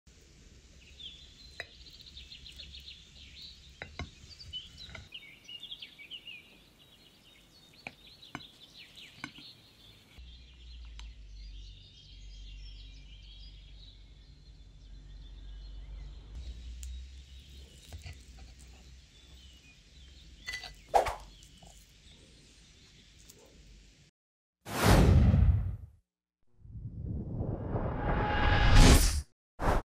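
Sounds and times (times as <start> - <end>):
birds chirping: 0.1 - 24.1
knife cutting through cake: 17.3 - 19.6
utensil clinking on plate: 20.4 - 20.9
low rumble: 26.6 - 28.9.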